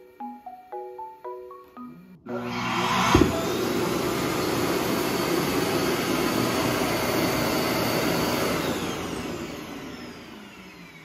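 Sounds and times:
suction motor running: 0:02.3 - 0:11.0.

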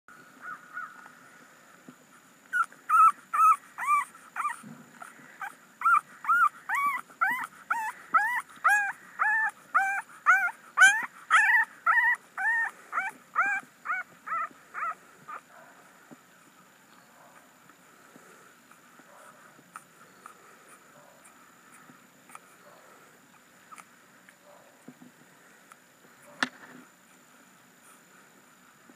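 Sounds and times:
puppy whimpering cries: 0:02.5 - 0:15.4.

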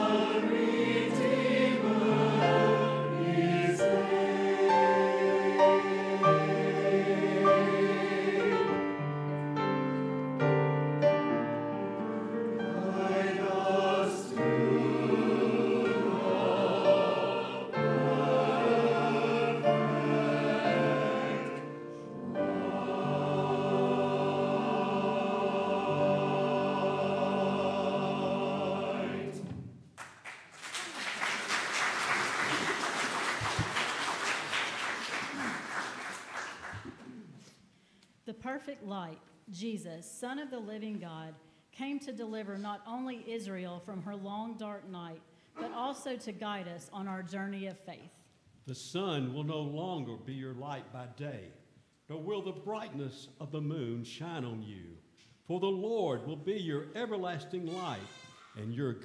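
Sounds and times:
choir singing: 0:00.0 - 0:10.0, 0:11.3 - 0:29.7
applause: 0:30.0 - 0:37.1.

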